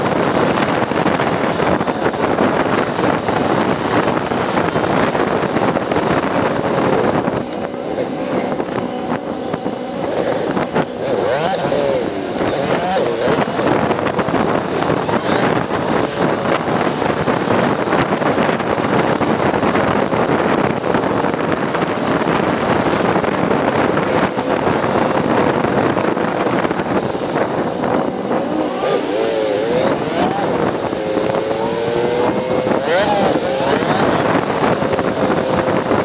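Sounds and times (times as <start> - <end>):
motorcycle engine running: 0.0 - 36.0
wind noise on microphone: 0.0 - 36.0.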